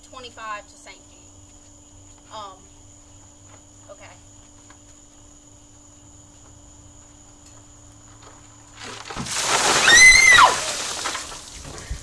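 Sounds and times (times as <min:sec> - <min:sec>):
water pouring and splashing: 0:08.8 - 0:12.0
high-pitched shriek: 0:09.7 - 0:10.8.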